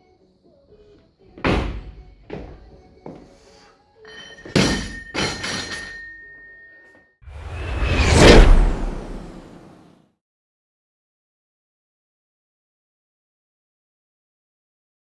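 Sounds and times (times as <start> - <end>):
barbell dropped on floor: 4.4 - 5.9.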